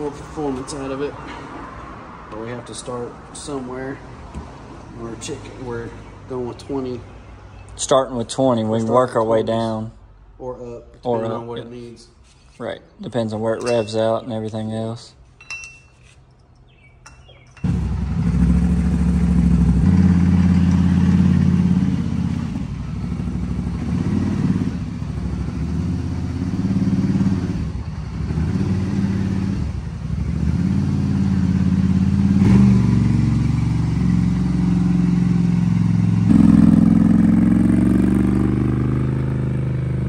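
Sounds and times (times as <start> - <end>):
atv engine revving: 17.6 - 40.0.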